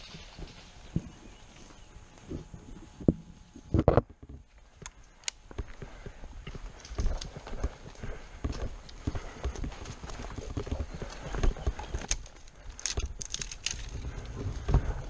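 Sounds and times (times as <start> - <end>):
twigs crackling and snapping: 6.6 - 7.6, 8.8 - 15.0.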